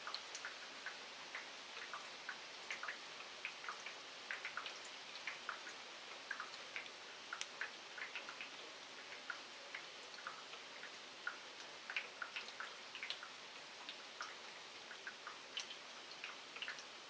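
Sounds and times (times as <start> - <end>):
light rain hiss: 0.0 - 17.0
raindrops clicking: 1.4 - 10.4, 11.3 - 13.3.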